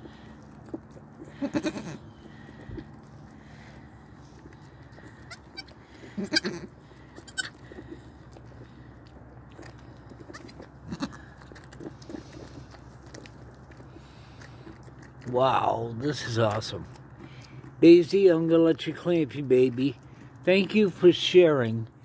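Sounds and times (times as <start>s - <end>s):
goat kid bleating: 1.2s - 2.5s, 4.9s - 7.7s, 10.2s - 11.3s.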